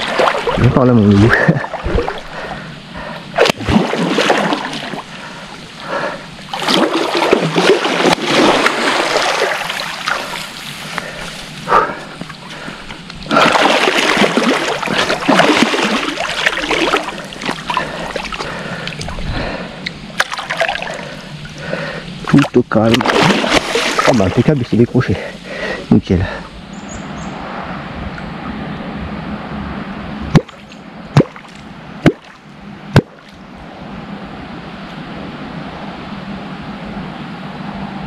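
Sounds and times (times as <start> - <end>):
fish thrashing and splashing: 0.0 - 0.7, 3.4 - 5.4, 6.5 - 11.2, 13.2 - 19.2, 20.2 - 21.2, 22.3 - 24.4.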